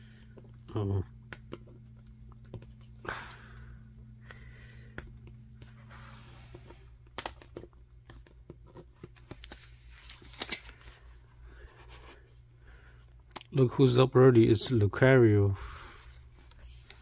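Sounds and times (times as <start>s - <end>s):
steady low hum: 0.0s - 17.0s
cardboard book pages rustling: 5.1s - 12.3s, 16.0s - 17.0s.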